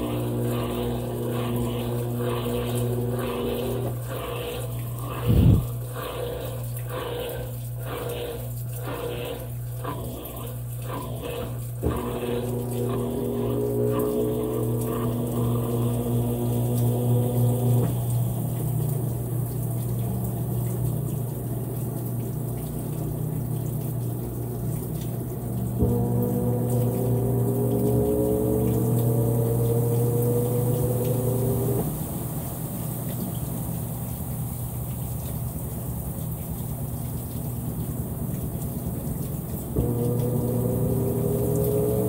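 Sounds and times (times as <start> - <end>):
washing machine motor hum: 0.0 - 42.0
water draining: 0.0 - 42.0.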